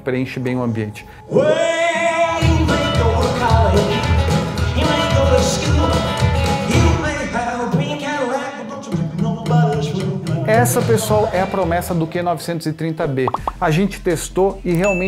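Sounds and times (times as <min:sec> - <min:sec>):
music with steady bass beat: 0:13.3 - 0:15.0.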